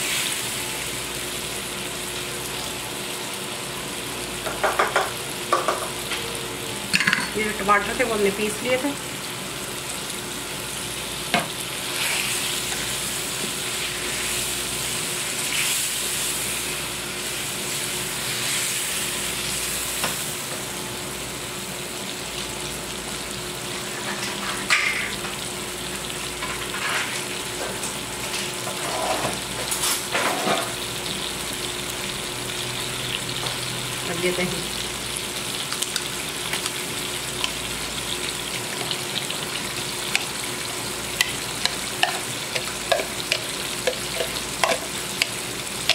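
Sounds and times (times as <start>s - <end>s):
chicken sizzling in oil: 0.0s - 45.9s
spatula scraping a wok: 28.7s - 29.4s.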